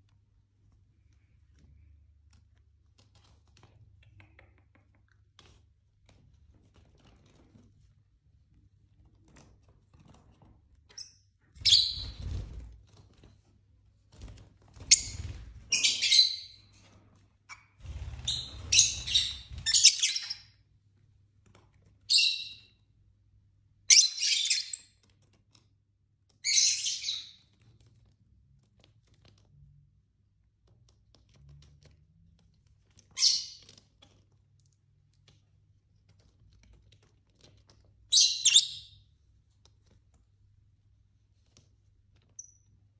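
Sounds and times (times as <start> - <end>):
lovebirds chirping and squawking: 11.0 - 12.4, 14.9 - 16.7, 17.5 - 20.6, 22.1 - 22.7, 23.9 - 24.9, 26.4 - 27.6, 33.1 - 33.8, 38.1 - 39.0.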